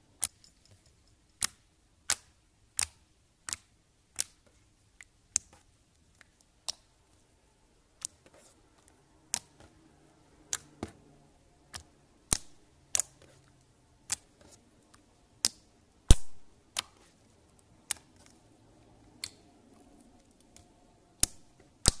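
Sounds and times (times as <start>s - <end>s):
slime popping clicks: 15.4s - 17.0s.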